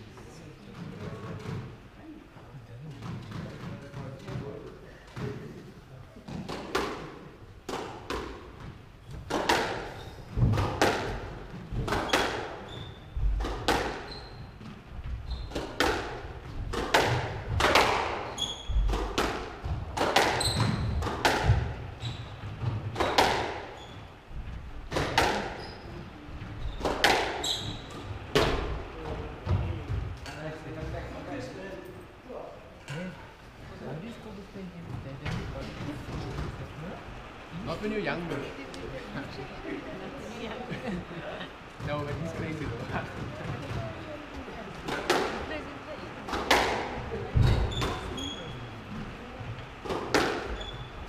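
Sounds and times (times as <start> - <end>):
squash ball hits echoing: 6.3 - 14.1, 15.5 - 23.7, 24.9 - 25.6, 26.8 - 28.8, 44.8 - 45.6, 46.3 - 48.4, 49.8 - 50.7
shoes squeaking on wooden floor: 11.5 - 15.8, 18.2 - 28.4, 47.3 - 49.4, 50.4 - 51.0.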